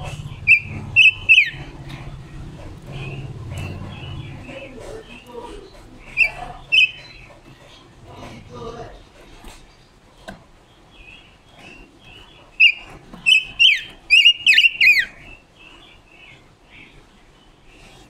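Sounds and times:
soft high bird chirps: 0.0 - 1.8, 6.0 - 7.3, 10.8 - 16.9.

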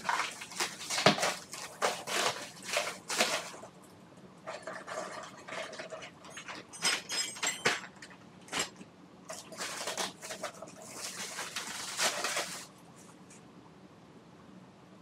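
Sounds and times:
plastic cling wrap crinkling: 0.0 - 3.7, 9.3 - 12.8.

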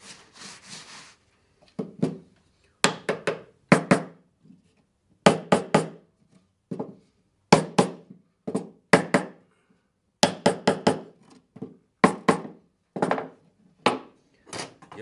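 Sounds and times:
hammer knocking wooden frame: 2.8 - 4.1, 5.2 - 6.0, 6.7 - 9.4, 10.2 - 14.1.

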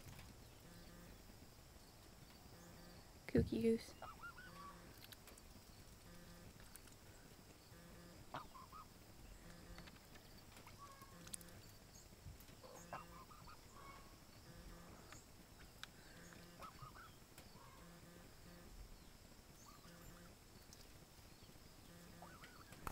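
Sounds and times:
goose calling: 4.0 - 5.0, 7.7 - 9.8, 10.7 - 11.6, 12.6 - 15.0, 16.2 - 18.7, 21.9 - 22.8.

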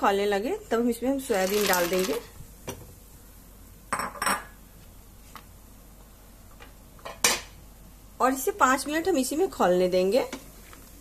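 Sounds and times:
boiling water: 1.2 - 3.8
utensils clinking on metal pan: 1.3 - 2.3.

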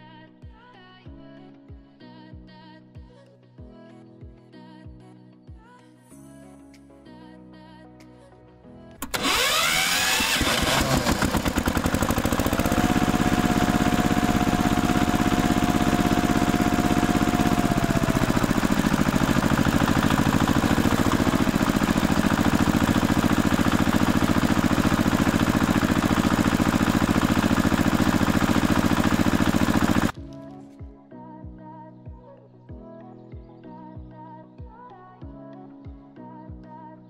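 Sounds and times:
engine starting and running: 9.0 - 30.2.

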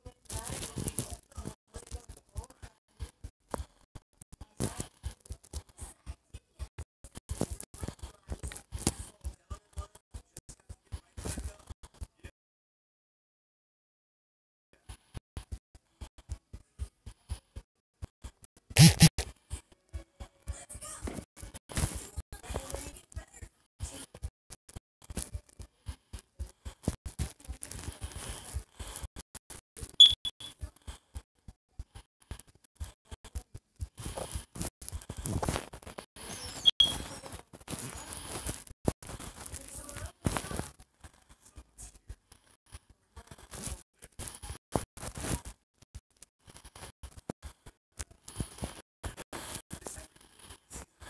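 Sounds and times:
short high beep: 18.8 - 19.1, 30.0 - 30.5, 36.6 - 37.0
finger tapping on touchscreen: 30.0 - 30.5, 36.6 - 37.0.

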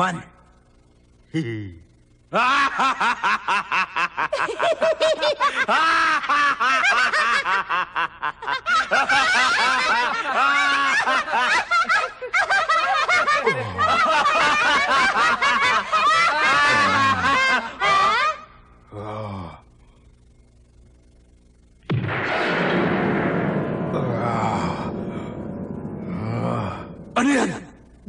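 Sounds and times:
several people laughing: 2.3 - 18.6
man laughing heartily: 2.4 - 18.3.

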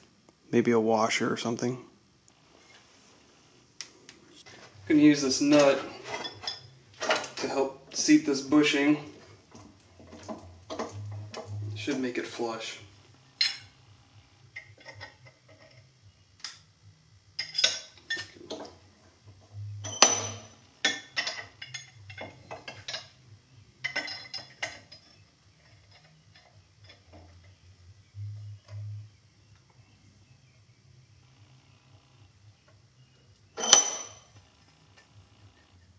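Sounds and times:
metal parts clanking in a vise: 5.2 - 8.1, 14.5 - 16.6, 17.4 - 18.8, 19.8 - 23.2, 23.8 - 27.6, 33.6 - 34.3.

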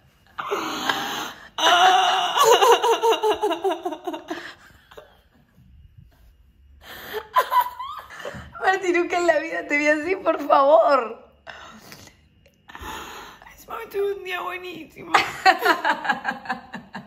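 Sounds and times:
woman crying: 0.4 - 5.1, 7.0 - 8.8.

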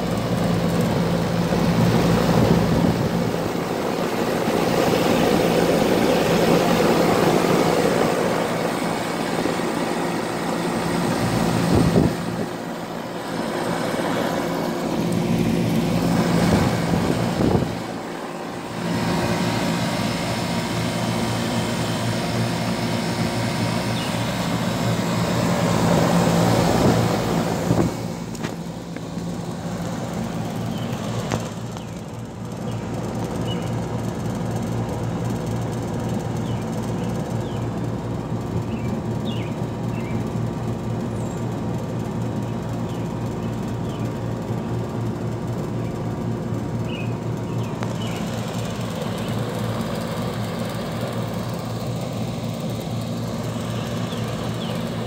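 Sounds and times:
condenser fan blowing air: 0.0 - 55.0.

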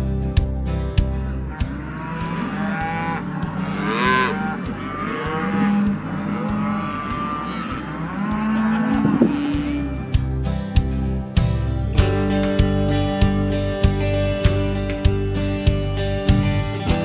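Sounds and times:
calves mooing: 1.1 - 10.4.

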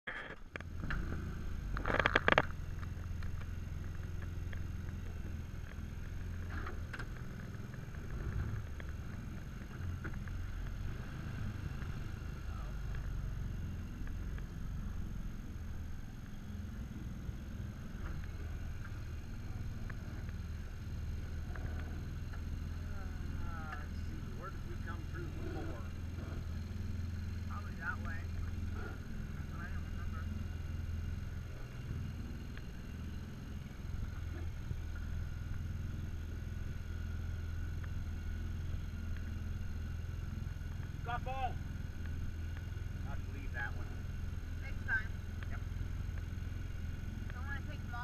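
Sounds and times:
boat engine low rumble: 0.1 - 48.0
loud rattle: 0.2 - 4.7.

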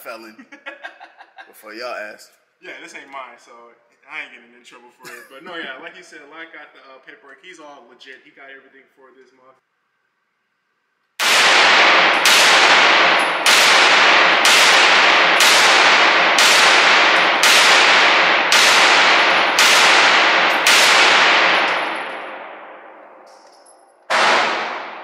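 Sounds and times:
rifle shots echoing indoors: 11.2 - 25.0.

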